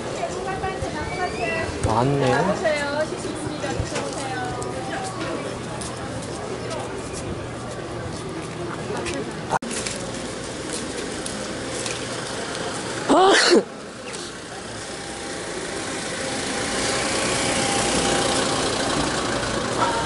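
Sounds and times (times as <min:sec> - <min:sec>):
car engine and tyres passing: 0:13.8 - 0:20.0.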